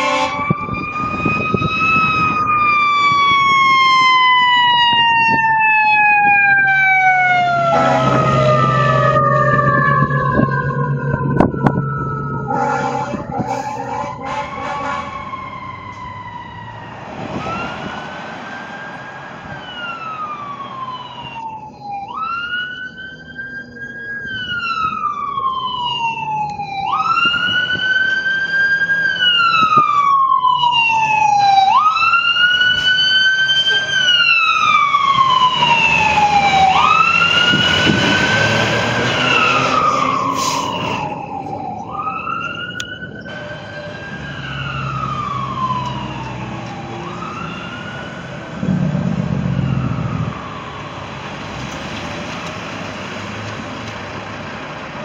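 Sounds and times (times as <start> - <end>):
fire truck sirens wailing: 0.0 - 55.0.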